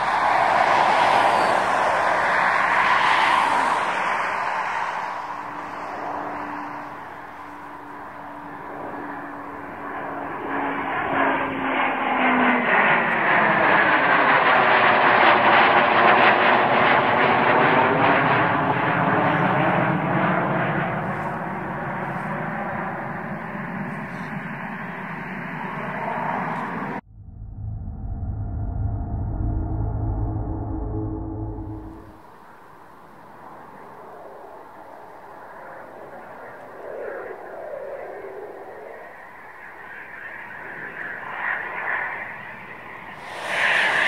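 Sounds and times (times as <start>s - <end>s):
jet roar overhead: 0.0s - 44.0s
whine sliding down in pitch: 27.0s - 32.4s, 43.2s - 44.0s.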